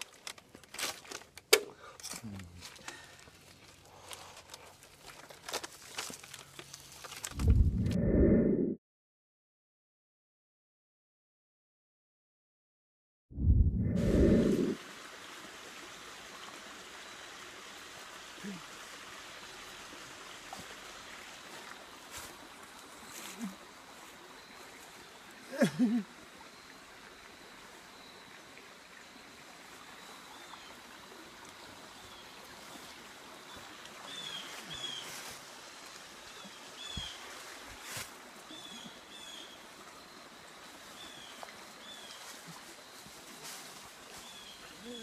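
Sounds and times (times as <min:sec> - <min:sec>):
stream rushing: 0:14.0 - 0:25.5.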